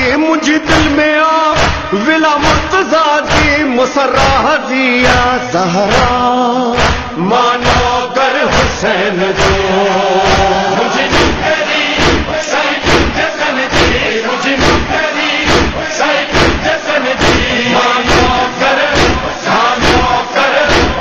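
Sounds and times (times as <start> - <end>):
heavy beat: 0.0 - 21.0
group of voices chanting: 5.0 - 21.0.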